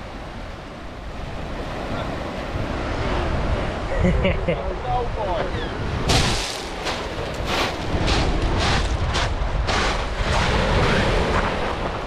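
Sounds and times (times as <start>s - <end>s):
wind buffeting microphone: 0.0s - 12.0s
footsteps crunching on pebbles: 6.4s - 10.0s.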